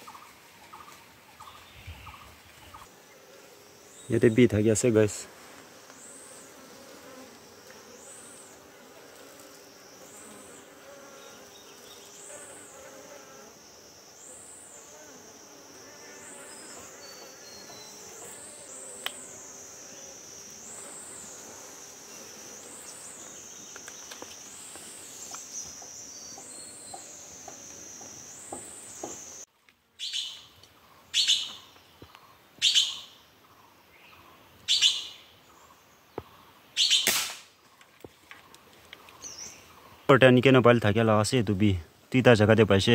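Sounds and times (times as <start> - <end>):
high insect buzz: 0.0 - 37.6
loud bird calls: 30.0 - 40.1.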